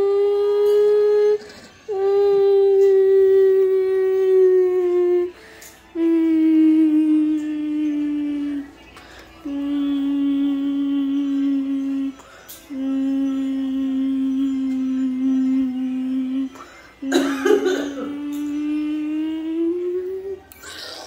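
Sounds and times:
high voice humming held notes: 0.0 - 21.0
breaths: 5.4 - 5.8, 9.0 - 9.4, 12.2 - 12.6, 16.6 - 17.0.

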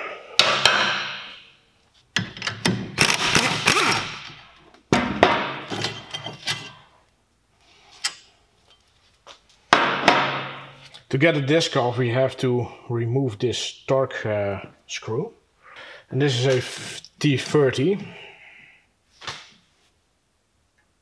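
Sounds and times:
socket tools clanking and rattling: 5.6 - 6.8.

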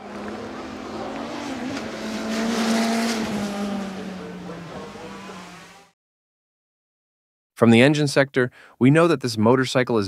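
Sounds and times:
motorcycle passing at speed: 0.0 - 5.9.

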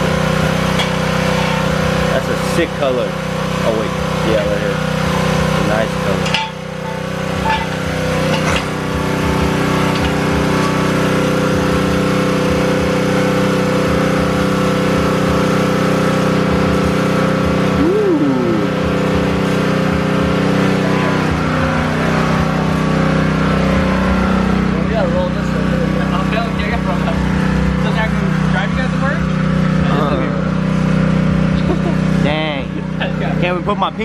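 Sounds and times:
engine running steadily: 0.0 - 34.0.

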